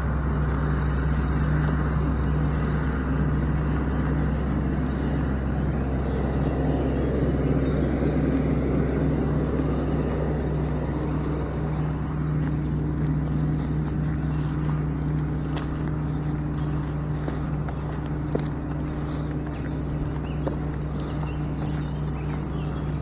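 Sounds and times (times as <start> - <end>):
vehicle engine running: 0.0 - 23.0.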